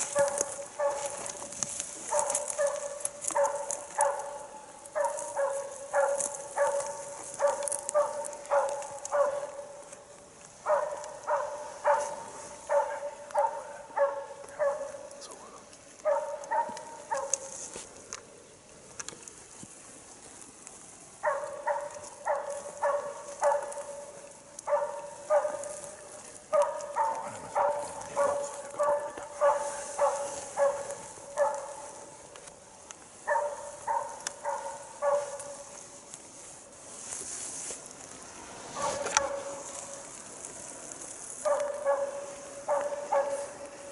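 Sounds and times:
dog barking: 0.0s - 1.4s, 2.0s - 9.9s, 10.6s - 15.2s, 16.0s - 17.6s, 21.2s - 32.2s, 33.2s - 35.7s, 38.8s - 39.8s, 41.4s - 43.8s.

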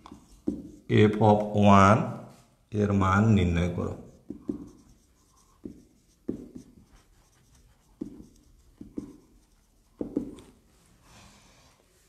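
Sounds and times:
pen tapping and stroking on surface: 0.0s - 0.9s, 3.9s - 10.7s.

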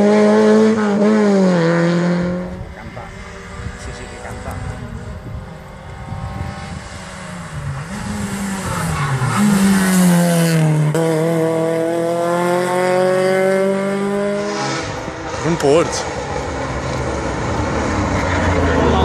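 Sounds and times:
rally car engine passing by: 0.0s - 19.0s.

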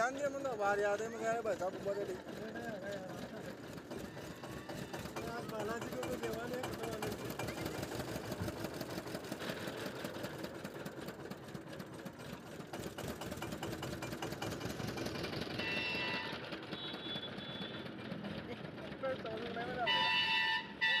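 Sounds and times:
juice crusher rollers clattering: 0.1s - 16.8s.

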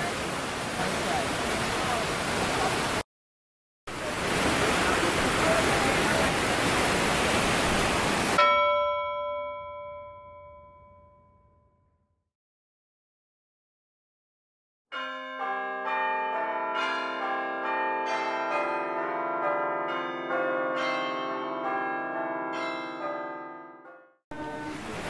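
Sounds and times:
bells chiming a melody: 8.4s - 11.8s, 14.9s - 24.1s.

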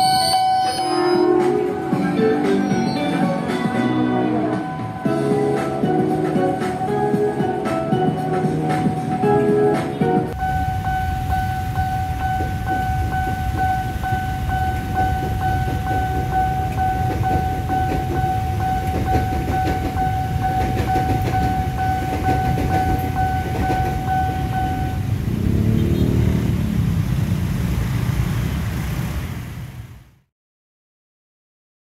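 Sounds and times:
level-crossing alarm ringing: 0.0s - 1.6s, 10.4s - 25.1s
electric train rumbling past: 0.0s - 7.6s, 10.3s - 30.1s
motorbike engines revving: 10.4s - 29.7s.

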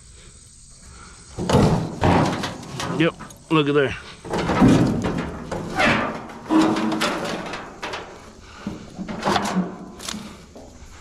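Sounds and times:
sheet metal scraping and rattling: 1.4s - 3.4s, 4.2s - 10.4s.

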